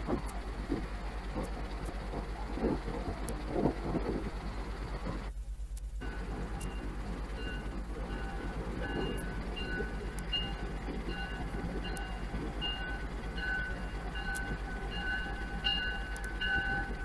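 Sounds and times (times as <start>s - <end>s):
train low rumble: 0.0s - 17.0s
locomotive bell ringing: 6.0s - 17.0s.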